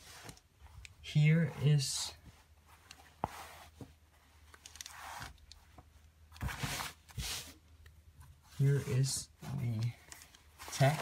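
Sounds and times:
shirt fabric rustling: 10.4 - 11.0.

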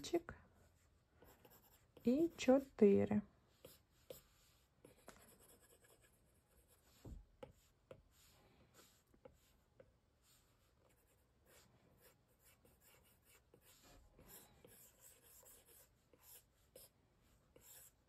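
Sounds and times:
stylus scratching on glass screen: 1.3 - 2.9.

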